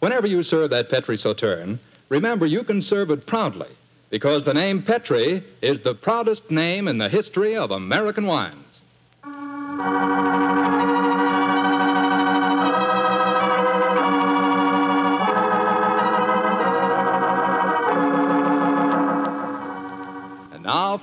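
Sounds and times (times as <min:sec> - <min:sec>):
organ playing held chords: 0:09.2 - 0:21.0.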